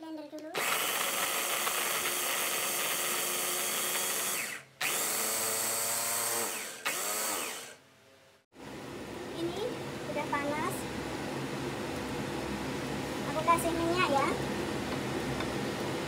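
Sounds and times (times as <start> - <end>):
electric food chopper whirring: 0.6 - 7.8.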